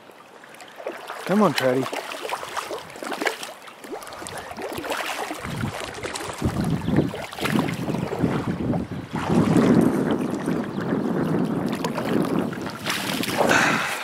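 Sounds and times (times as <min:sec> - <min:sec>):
water splashing: 0:00.0 - 0:14.0
wind buffeting microphone: 0:05.3 - 0:14.0.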